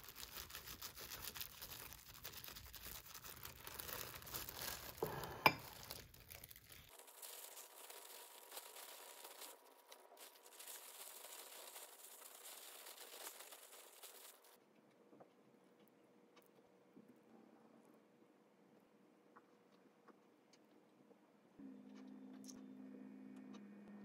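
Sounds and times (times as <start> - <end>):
plastic gloves crinkling: 0.0 - 14.6.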